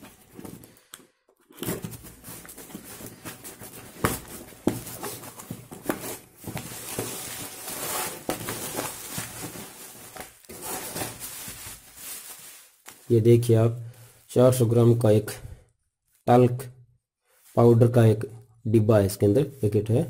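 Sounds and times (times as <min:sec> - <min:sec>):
cardboard and tape ripping: 0:01.6 - 0:12.4
bubble wrap crinkling: 0:01.6 - 0:13.3.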